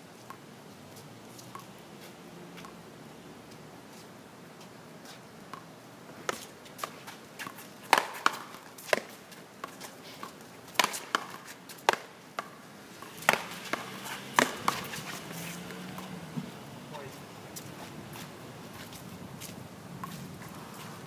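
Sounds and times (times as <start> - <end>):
paddles smacking a ball: 6.3 - 9.8, 10.7 - 16.5
ball striking a wall: 13.2 - 14.9.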